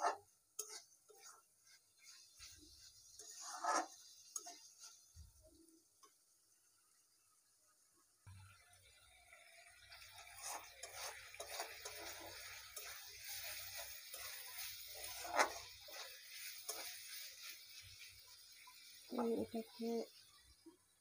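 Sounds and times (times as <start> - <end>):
steel spatula scraping a pan: 0.0 - 5.2, 9.9 - 20.5
meat sizzling in spice paste: 0.0 - 21.0
spatula clanking on pan: 10.8 - 16.9.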